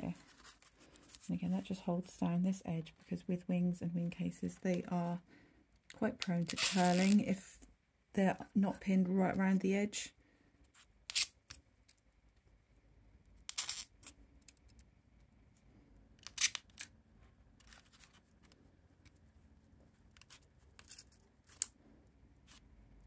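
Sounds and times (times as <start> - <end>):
paper rustling and scraping: 0.0 - 1.3, 6.4 - 7.3, 17.6 - 18.6.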